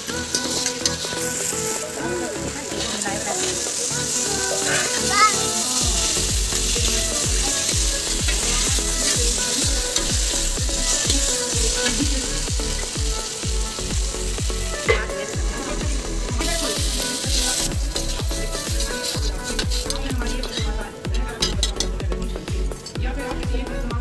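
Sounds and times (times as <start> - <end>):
potatoes sizzling in oil: 0.0 - 23.9
background music with steady beat: 0.0 - 24.0
metal spatula scraping pan: 6.1 - 12.2, 14.8 - 20.8
steel plate clanking on pan: 14.8 - 15.5.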